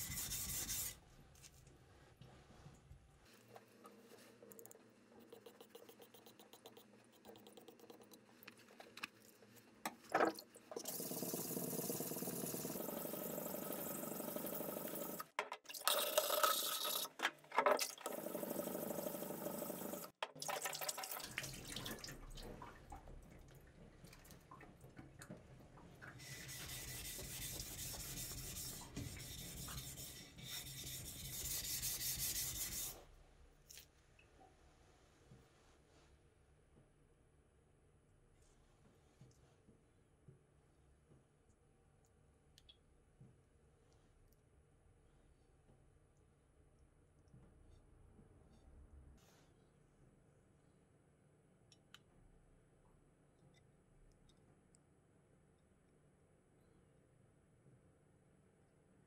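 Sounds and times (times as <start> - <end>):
water running from tap: 10.8 - 17.1, 17.8 - 22.9.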